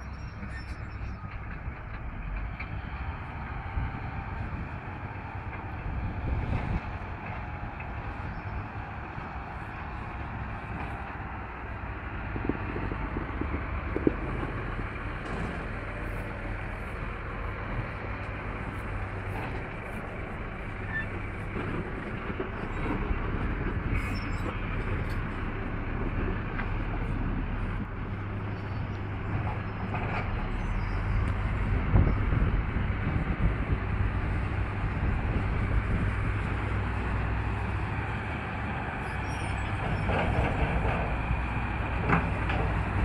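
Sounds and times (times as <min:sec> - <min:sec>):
diesel engine rumbling under load: 0:00.0 - 0:43.0.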